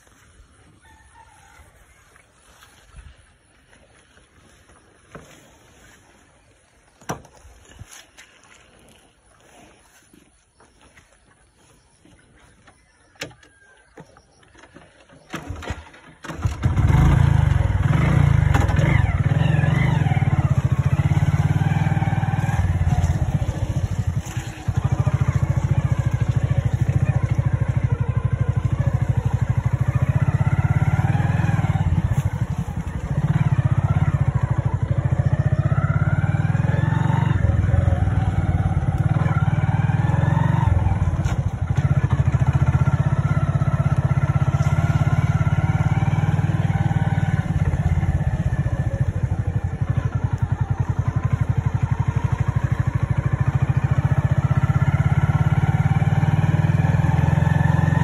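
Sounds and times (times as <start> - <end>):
motorcycle engine revving: 15.2 - 58.0.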